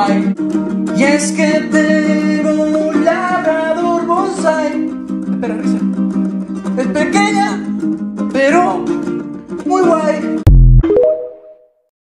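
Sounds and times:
man singing wordless melody: 0.0s - 5.8s
acoustic guitar strumming: 0.0s - 10.6s.

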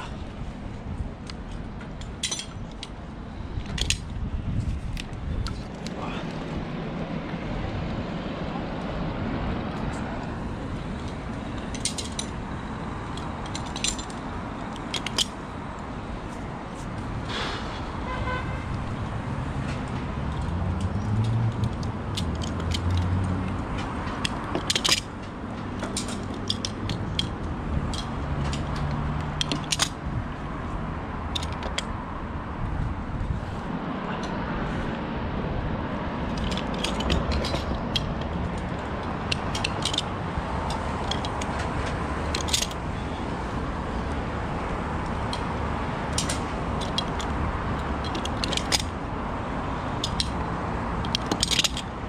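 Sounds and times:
outdoor background noise: 0.0s - 52.0s
metal carabiners clinking: 1.2s - 4.2s, 10.7s - 15.5s, 19.7s - 30.4s, 31.3s - 31.9s, 36.2s - 52.0s.

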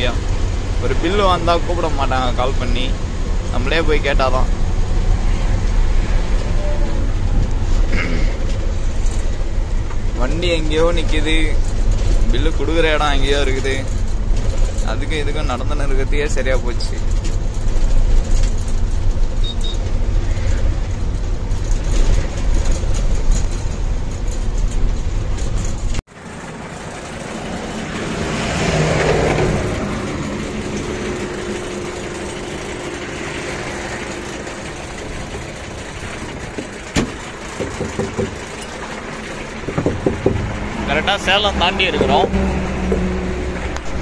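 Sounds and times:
truck engine and road rumble: 0.0s - 44.0s.

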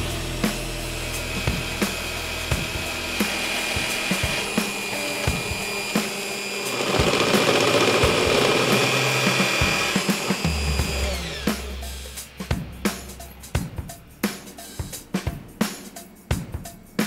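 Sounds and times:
drill press cutting into metal: 1.6s - 11.5s.

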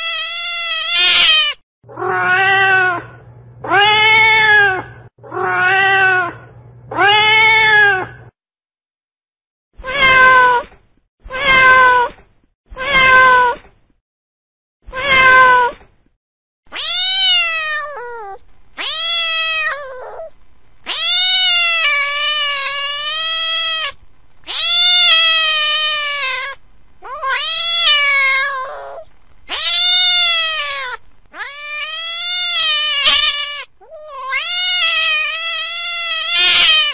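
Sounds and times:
cat meowing: 0.0s - 8.2s, 9.8s - 10.7s, 11.3s - 12.1s, 12.8s - 13.6s, 14.9s - 15.8s, 16.7s - 36.9s.

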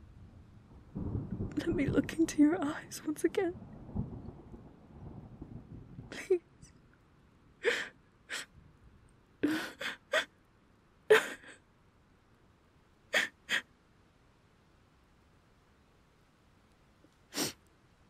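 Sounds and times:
woman sobbing: 6.1s - 6.4s, 7.6s - 8.5s, 9.4s - 10.4s, 11.1s - 11.7s, 13.1s - 13.7s.

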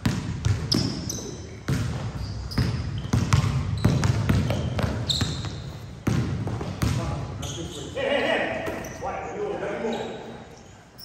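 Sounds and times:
basketball bouncing on hardwood: 0.0s - 1.0s, 1.7s - 7.1s
sneakers squeaking on court: 0.0s - 8.0s, 8.6s - 11.0s.

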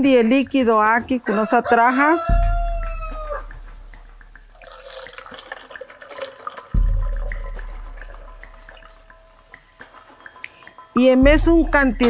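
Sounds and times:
liquid splashing into funnel: 4.5s - 9.2s.

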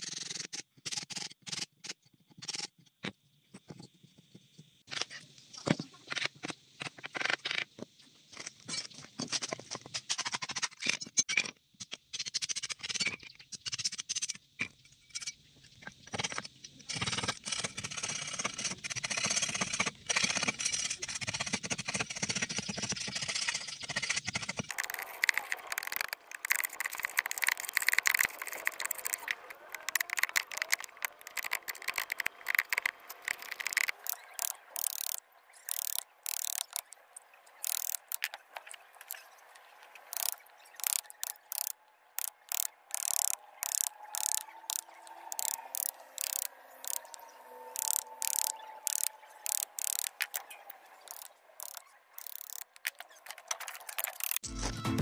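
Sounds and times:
knife whittling wood: 24.1s - 37.0s.

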